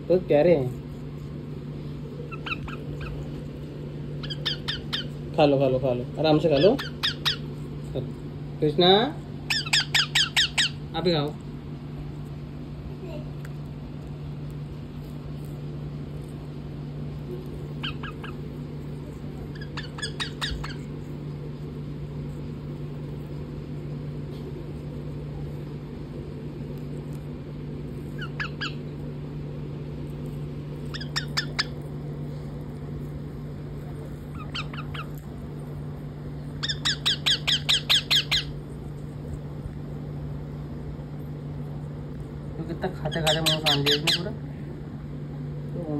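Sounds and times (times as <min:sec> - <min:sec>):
steady low hum: 0:00.0 - 0:45.9
parakeets chattering calls: 0:02.1 - 0:08.0, 0:08.6 - 0:11.3, 0:17.2 - 0:24.1, 0:28.0 - 0:29.1, 0:30.5 - 0:38.8, 0:42.6 - 0:44.4.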